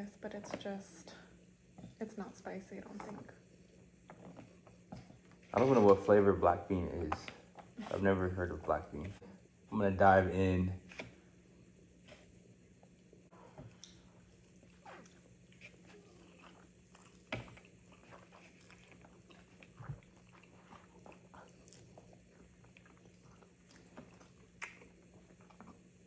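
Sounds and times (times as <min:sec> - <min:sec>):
chewing: 0:03.6 - 0:05.6, 0:13.4 - 0:26.0.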